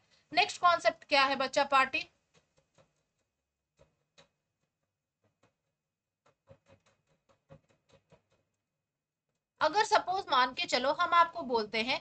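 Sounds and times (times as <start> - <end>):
stylus tapping on drawing tablet: 2.2 - 8.6.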